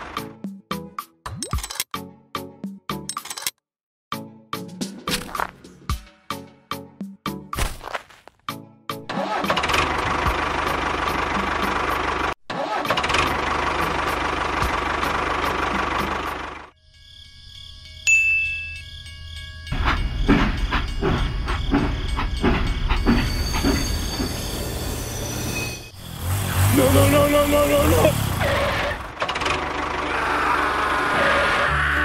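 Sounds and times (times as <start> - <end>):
loud motor running: 25.9 - 31.4.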